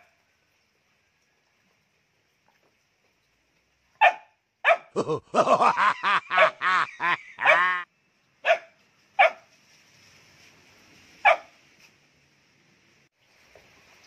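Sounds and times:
dog barking: 0:04.0 - 0:05.0, 0:06.3 - 0:06.6, 0:07.4 - 0:07.8, 0:08.4 - 0:09.5, 0:11.2 - 0:11.5.

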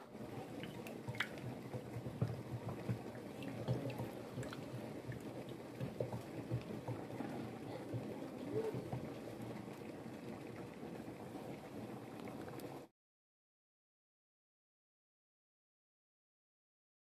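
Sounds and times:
wet squelches of stirring: 0:00.0 - 0:12.9.

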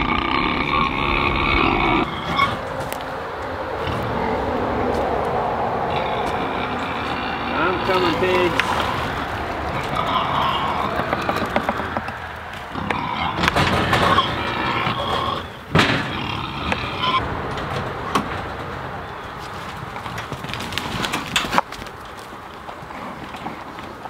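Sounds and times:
gate squeaking: 0:00.1 - 0:04.5, 0:05.9 - 0:19.5
gate banging: 0:01.8 - 0:03.0, 0:05.9 - 0:20.4.

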